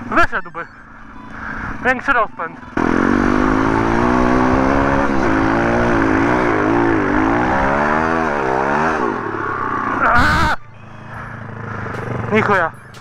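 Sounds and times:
motorbike engine revving: 2.6s - 13.0s.

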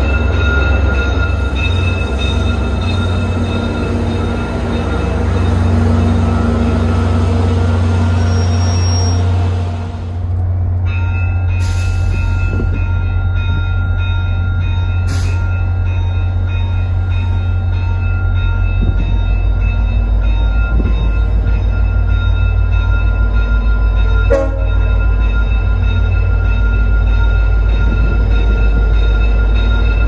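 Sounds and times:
diesel locomotive engine rumble: 0.0s - 30.0s.

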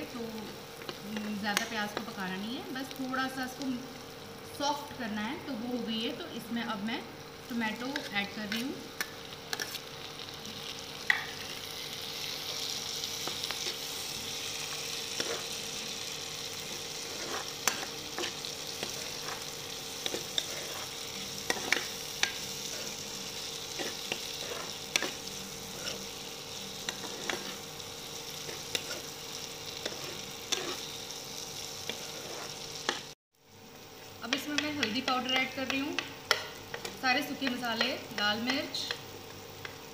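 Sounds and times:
vegetables sizzling in hot oil: 0.0s - 39.9s
metal spoon scraping a pan: 7.8s - 9.9s, 12.3s - 15.8s, 16.5s - 27.7s, 28.3s - 31.0s, 31.8s - 33.1s.

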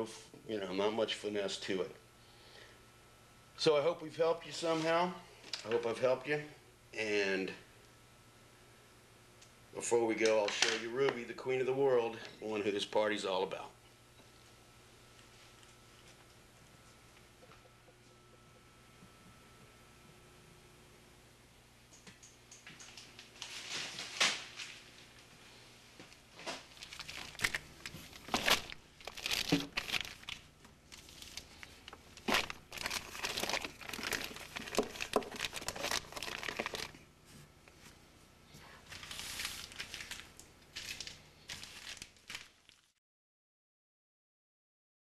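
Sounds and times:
plastic bags crinkling: 22.6s - 25.3s, 26.3s - 37.0s, 38.8s - 43.0s.

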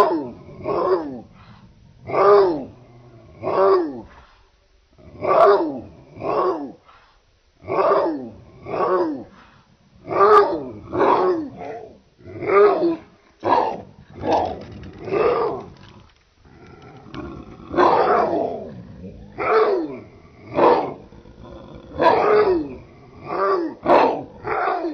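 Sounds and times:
big dog barking deeply: 0.0s - 1.3s, 5.0s - 6.8s, 7.6s - 9.3s, 10.0s - 15.8s, 16.5s - 24.9s.

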